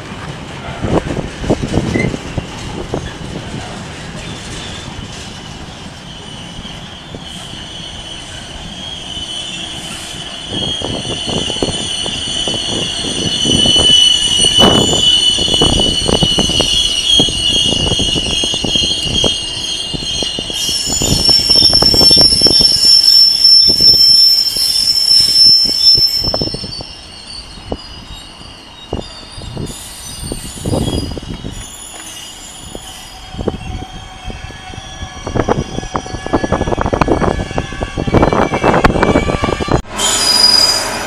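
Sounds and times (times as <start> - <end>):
train wheels squealing: 1.8 - 41.0.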